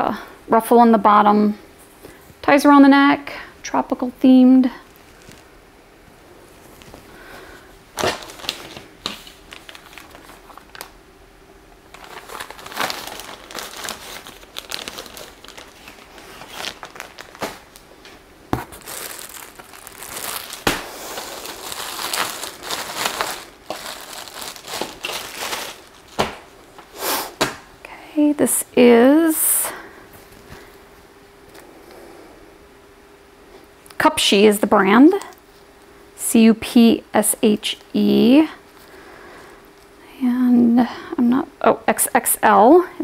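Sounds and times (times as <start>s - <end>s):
plastic packaging crinkling: 4.7s - 5.5s, 6.6s - 11.0s, 11.7s - 26.8s.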